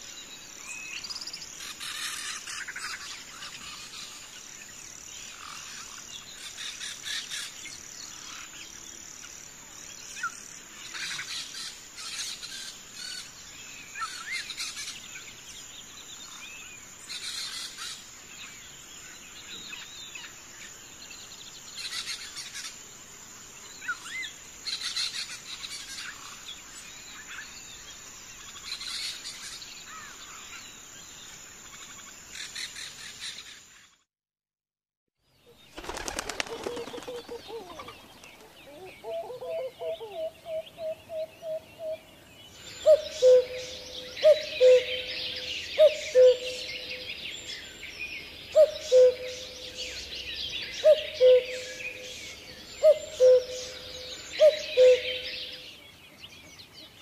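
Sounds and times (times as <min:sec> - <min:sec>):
high insect drone: 0:00.0 - 0:33.8
birds chirping: 0:35.4 - 0:57.0.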